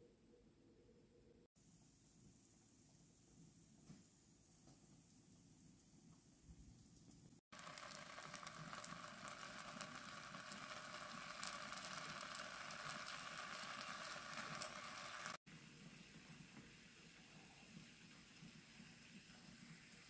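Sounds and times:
oil sizzling and crackling: 0:07.5 - 0:20.0.

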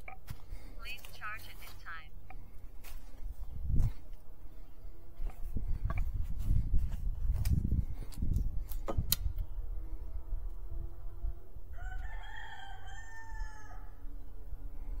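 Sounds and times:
rooster crowing: 0:11.7 - 0:14.1.

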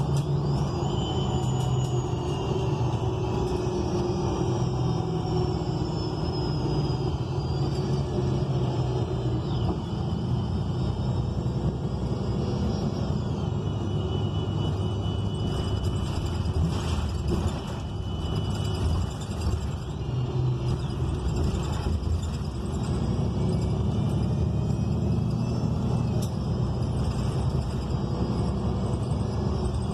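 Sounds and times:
bus engine rumble: 0:00.0 - 0:29.9
high whining tones: 0:00.0 - 0:29.9
road noise: 0:00.0 - 0:29.9.

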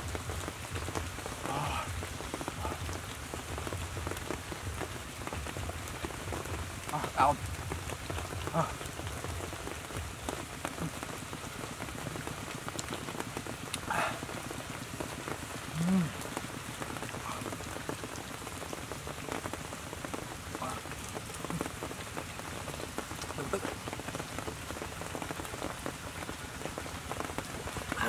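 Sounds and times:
man humming while eating: 0:15.7 - 0:16.2.

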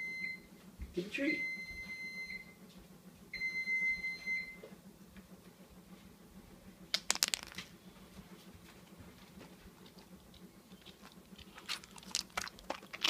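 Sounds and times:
treat clattering on hard floor: 0:06.9 - 0:07.7.

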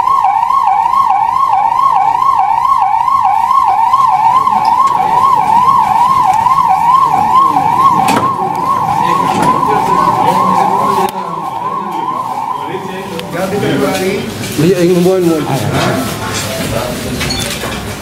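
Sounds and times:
ambulance siren wailing: 0:00.0 - 0:14.4.

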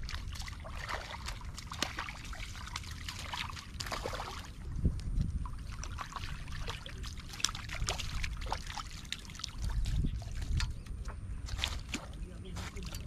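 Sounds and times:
fish splashing at water surface: 0:00.0 - 0:04.6, 0:05.4 - 0:10.7.

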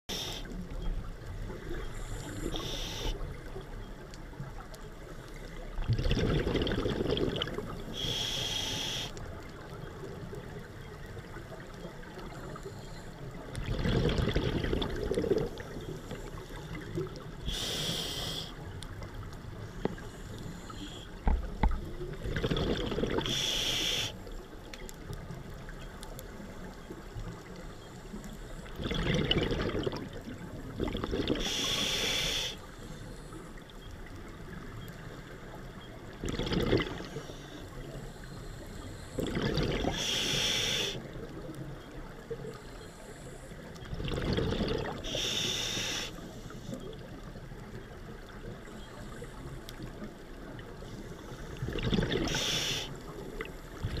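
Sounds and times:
hissing regulator inhalations: 0:00.1 - 0:00.6, 0:01.9 - 0:03.4, 0:07.9 - 0:09.2, 0:17.4 - 0:18.6, 0:23.2 - 0:24.3, 0:31.3 - 0:33.5, 0:37.1 - 0:41.1, 0:45.0 - 0:46.8, 0:50.9 - 0:53.1
bubbling exhaust: 0:05.8 - 0:08.1, 0:28.8 - 0:30.1, 0:43.9 - 0:45.2.

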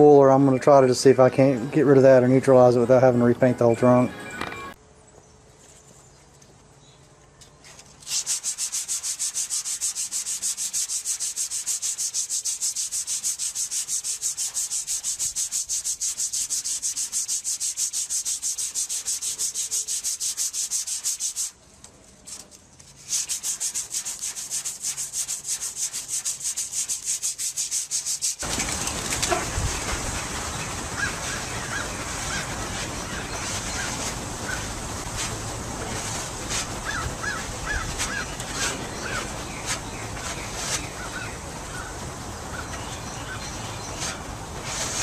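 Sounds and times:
sandpaper sanding by hand: 0:08.0 - 0:21.6, 0:22.3 - 0:41.9, 0:43.2 - 0:45.0
steady noise: 0:28.0 - 0:45.0.

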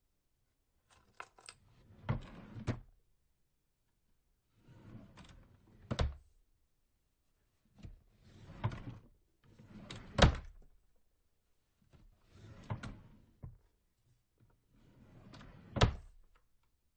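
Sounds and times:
drawer sliding open and shut: 0:01.0 - 0:02.9, 0:04.5 - 0:06.3, 0:07.7 - 0:10.6, 0:11.8 - 0:13.6, 0:14.6 - 0:16.4.

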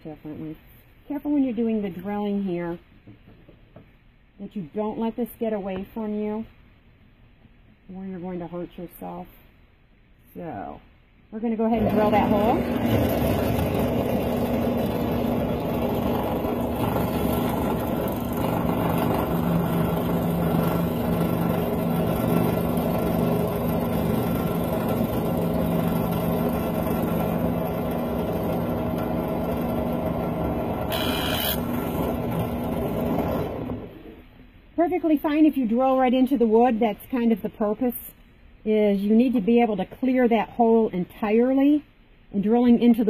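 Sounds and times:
drill press motor hum: 0:11.8 - 0:34.3.

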